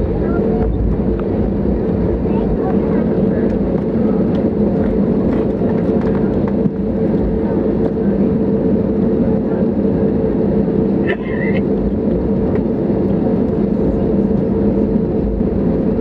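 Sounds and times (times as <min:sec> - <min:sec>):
aircraft engine hum: 0:00.0 - 0:16.0
wheels rumbling on taxiway: 0:00.0 - 0:16.0.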